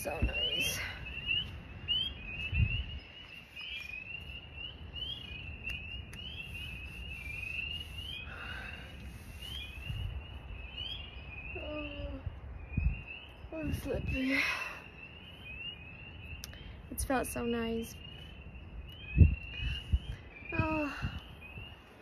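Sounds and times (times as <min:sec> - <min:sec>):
chorus of high chirps: 0:00.0 - 0:22.0.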